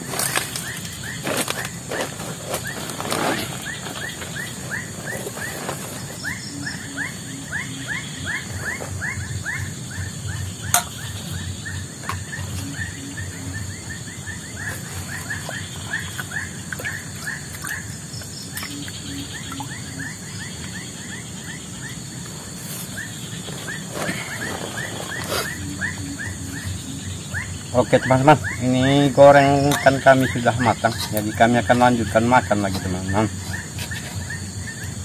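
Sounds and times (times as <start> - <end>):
steady high drone: 0.0 - 33.7
low pulsed animal call: 6.2 - 22.0, 22.9 - 31.2.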